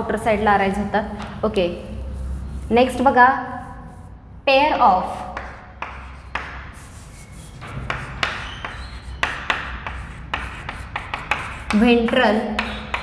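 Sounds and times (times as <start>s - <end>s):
chalk tapping and scratching on board: 5.1s - 13.0s.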